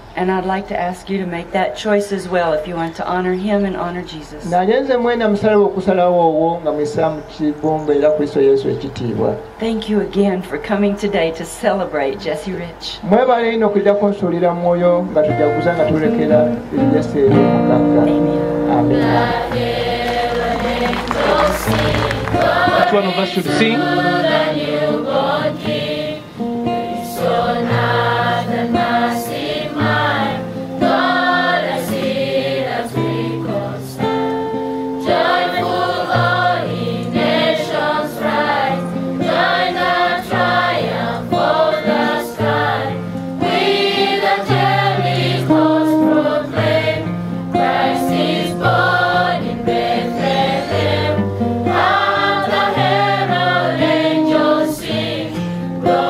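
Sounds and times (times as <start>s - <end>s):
mixed choir singing in harmony: 18.6s - 56.0s.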